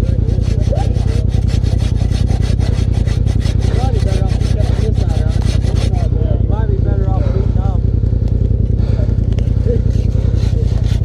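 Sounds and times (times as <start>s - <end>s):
hand saw cutting wood: 0.0s - 6.2s, 8.8s - 11.0s
low rumble: 0.0s - 11.0s.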